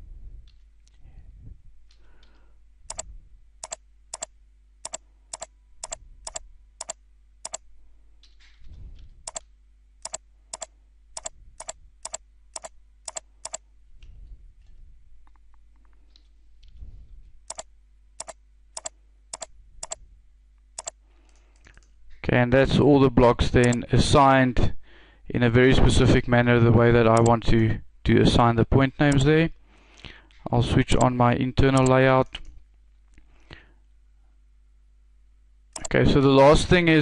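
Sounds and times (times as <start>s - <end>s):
steady low hum: 0.0s - 37.0s
mouse clicks: 2.9s - 7.6s, 9.3s - 13.6s, 17.5s - 20.0s, 20.8s - 21.9s, 23.6s - 23.8s
keyboard keystrokes: 3.6s - 7.6s, 9.3s - 13.6s, 18.2s - 20.0s, 20.8s - 21.4s.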